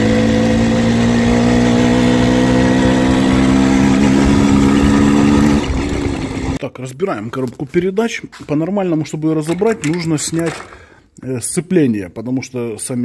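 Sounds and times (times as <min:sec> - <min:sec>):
motorcycle engine running under load: 0:00.0 - 0:06.6.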